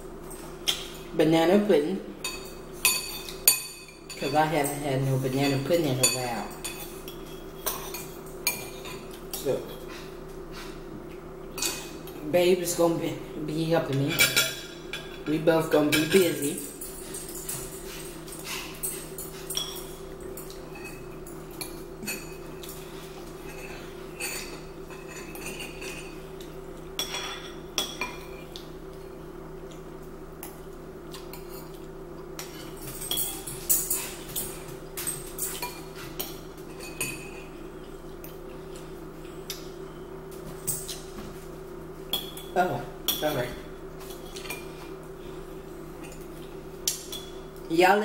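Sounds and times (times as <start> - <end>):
steady low hum: 0.0 - 48.0
cutlery clinking on ceramic bowls: 2.2 - 4.8, 23.4 - 28.4, 32.4 - 37.6.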